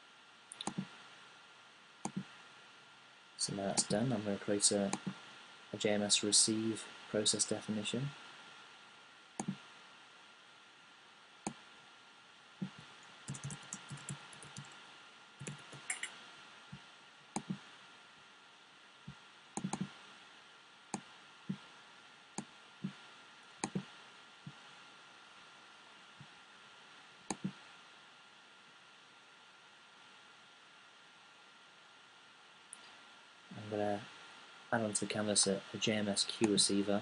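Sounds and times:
computer mouse clicks: 0.5s - 0.9s, 2.0s - 2.3s, 4.9s - 5.2s, 9.4s - 9.6s, 12.6s - 14.8s, 15.4s - 16.2s, 17.3s - 17.6s, 19.6s - 19.9s, 23.6s - 24.6s, 27.3s - 27.6s
keyboard keystrokes: 12.6s - 14.7s, 15.4s - 16.1s.

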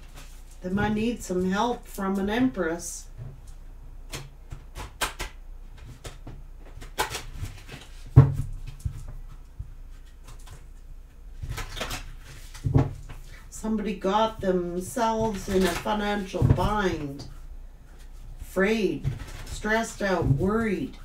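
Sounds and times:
cards shuffling: 11.4s - 13.4s.

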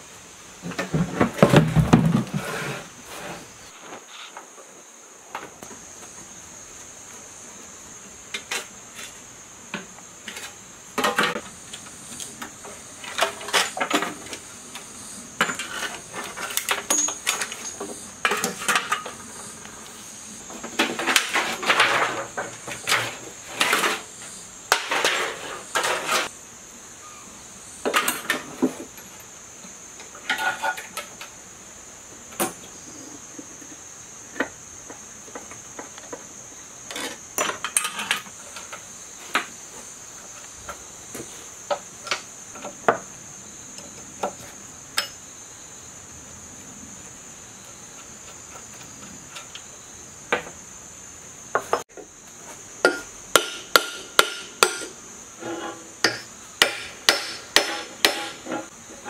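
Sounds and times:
high insect drone: 0.0s - 59.0s
metal clanks and scrapes: 15.4s - 19.3s, 20.5s - 24.1s, 24.7s - 26.3s, 30.2s - 31.3s, 36.9s - 38.8s, 55.4s - 56.3s, 57.7s - 59.0s.

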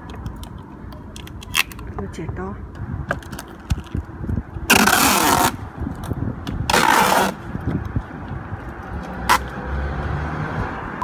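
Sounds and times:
packing tape ripped off roll: 4.7s - 5.6s, 6.7s - 7.4s.

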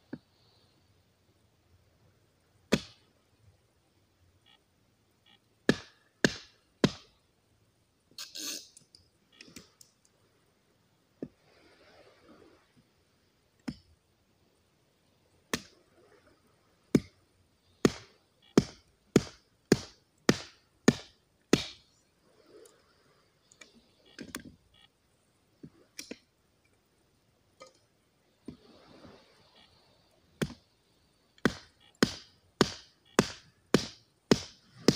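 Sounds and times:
hatchet chopping wood: 2.7s - 3.0s, 5.7s - 7.1s, 16.9s - 17.1s, 17.8s - 21.8s, 31.4s - 34.9s.

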